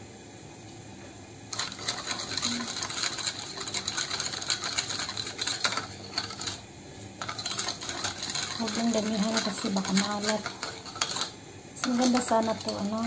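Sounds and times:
metal spoon stirring in glass bowl: 1.5s - 6.6s, 7.2s - 13.0s.

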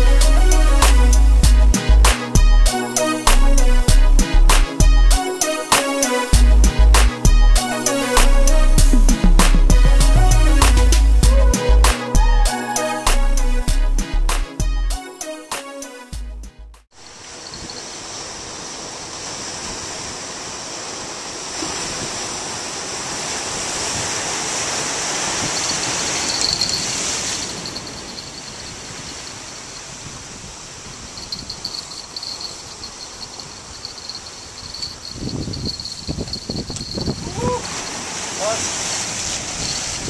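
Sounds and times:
ocean surf washing against rocks: 17.0s - 40.0s
wind buffeting microphone: 21.6s - 40.0s.

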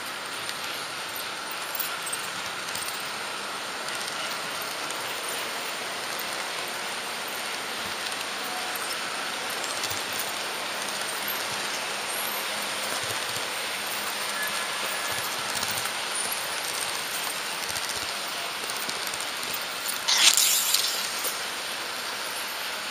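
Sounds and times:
model train wheels hissing: 14.2s - 22.9s.

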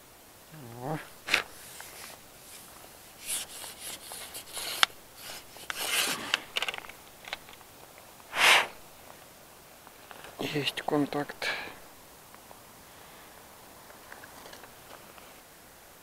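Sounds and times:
sleeves rustling on fishing rod: 1.1s - 11.0s
sharp clicks: 3.5s - 8.8s.

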